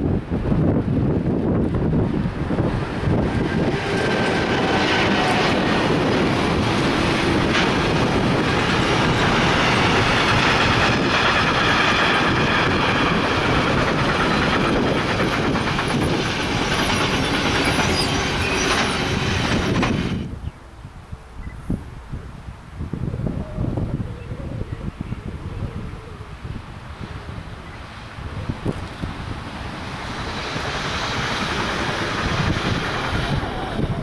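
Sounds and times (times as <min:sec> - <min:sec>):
freight train wheels clattering: 0:01.4 - 0:20.3, 0:28.6 - 0:34.0.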